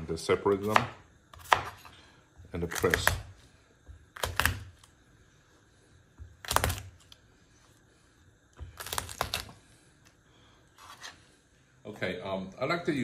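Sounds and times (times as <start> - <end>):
knife chopping on plastic board: 0.6 - 1.9, 2.5 - 4.9.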